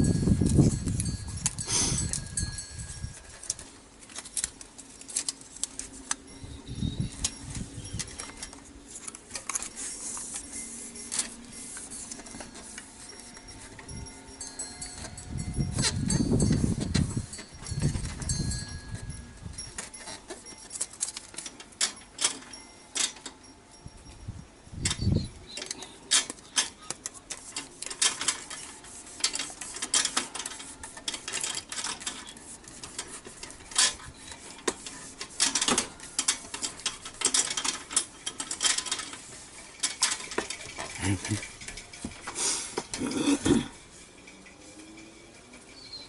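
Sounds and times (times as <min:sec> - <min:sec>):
tape crinkling and rubbing: 0:00.0 - 0:13.9, 0:25.6 - 0:44.0.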